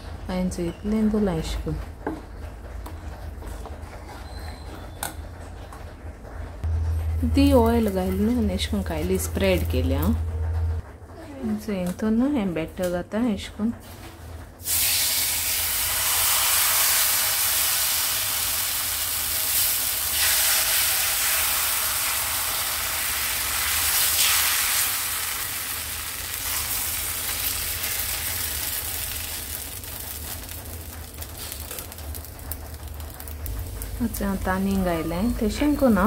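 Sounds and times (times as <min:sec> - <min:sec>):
batter sizzling in frying pan: 0:14.6 - 0:34.7.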